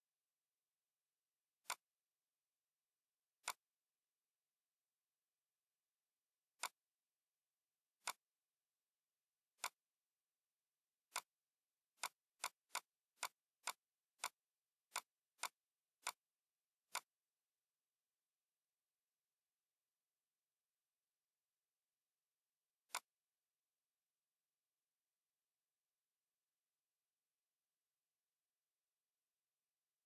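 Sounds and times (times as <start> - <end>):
computer mouse button clicking: 3.4 - 3.6, 9.6 - 9.8, 22.9 - 23.1.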